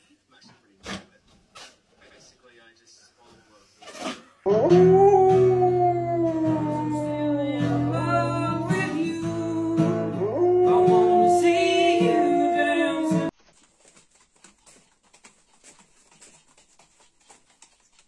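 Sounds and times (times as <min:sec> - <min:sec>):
dog howling: 0:04.5 - 0:13.3
strummed acoustic guitar: 0:06.4 - 0:13.3.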